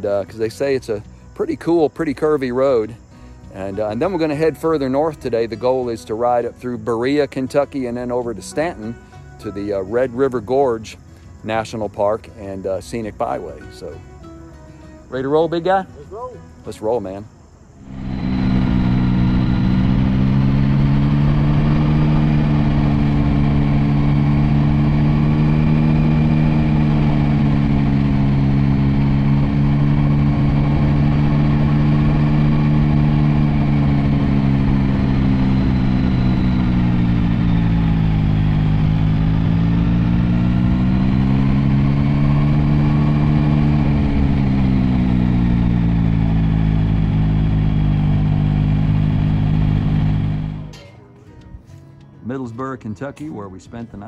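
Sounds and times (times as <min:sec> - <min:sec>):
wind noise: 0:17.8 - 0:50.6
motorcycle engine running: 0:17.8 - 0:50.7.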